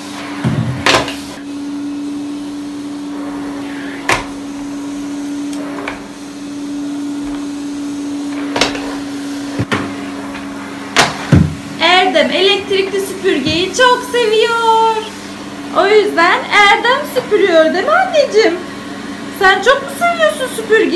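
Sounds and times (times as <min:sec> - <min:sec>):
vacuum cleaner running: 0:00.0 - 0:20.9
sharp knocks: 0:11.0 - 0:11.6.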